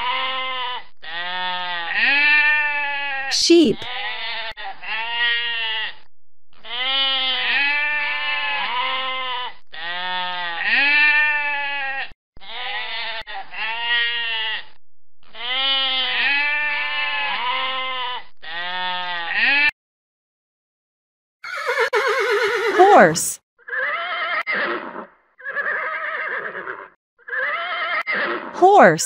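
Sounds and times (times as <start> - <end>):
sheep bleating: 0.0 - 6.0, 6.6 - 14.7, 15.4 - 19.7.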